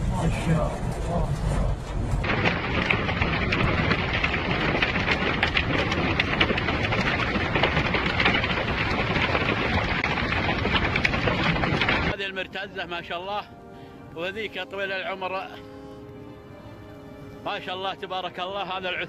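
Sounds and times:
rain falling: 2.1 - 12.2
hailstones ticking: 2.2 - 15.9.

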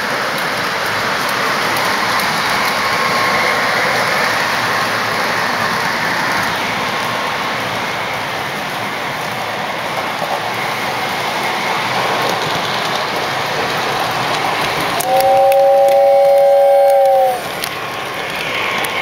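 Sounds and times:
model trains rumbling on track: 0.0 - 19.0
train chord whistle: 15.0 - 17.7.

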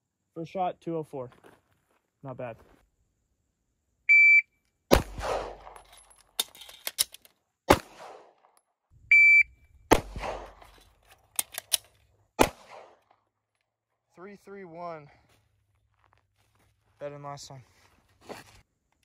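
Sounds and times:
shot timer beeps: 4.1 - 4.5, 9.1 - 9.6
pistol shots: 4.9 - 5.9, 7.7 - 8.5, 9.9 - 10.7, 12.4 - 13.1
quick clicks: 11.3 - 11.9.

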